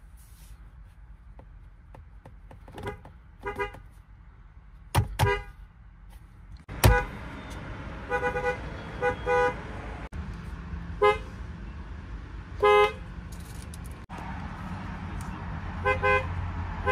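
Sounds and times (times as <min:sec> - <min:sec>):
car horn toots: 0:02.8 - 0:03.9, 0:05.2 - 0:05.6, 0:06.7 - 0:09.7, 0:12.6 - 0:13.0, 0:15.8 - 0:16.9.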